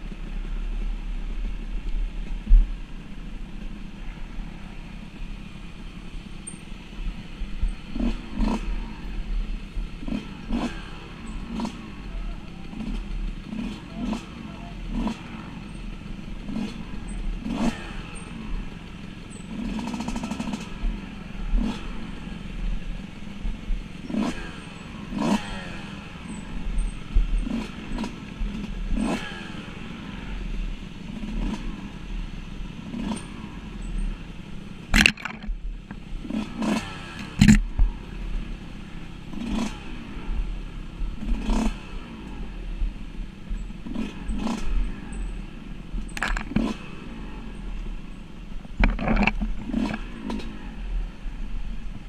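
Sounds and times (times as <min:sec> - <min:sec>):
dirt bike engine revving: 0:03.9 - 0:52.0
knocks and clatter over bumps: 0:14.9 - 0:25.6, 0:34.8 - 0:38.4, 0:46.0 - 0:47.0, 0:47.7 - 0:50.7.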